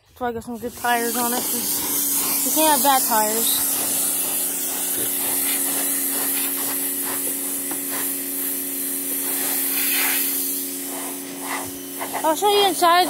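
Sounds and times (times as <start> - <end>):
pressure washer motor hum: 0.0 - 13.0
water spray hissing: 0.2 - 13.0.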